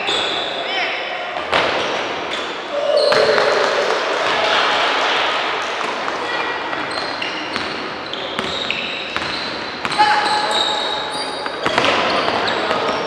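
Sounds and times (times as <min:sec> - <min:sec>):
sneakers squeaking on floor: 0:00.0 - 0:00.7, 0:01.7 - 0:04.4, 0:06.8 - 0:13.0
background voices in hall: 0:01.1 - 0:08.6
basketball bouncing: 0:03.0 - 0:04.5.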